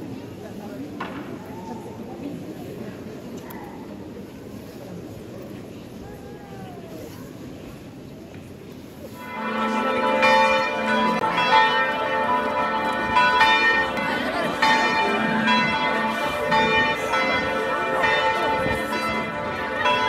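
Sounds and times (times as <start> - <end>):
church bells pealing: 9.1 - 20.0.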